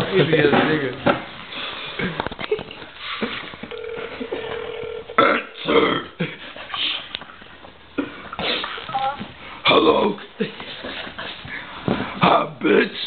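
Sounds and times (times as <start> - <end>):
steady telephone tone: 3.7 - 5.2.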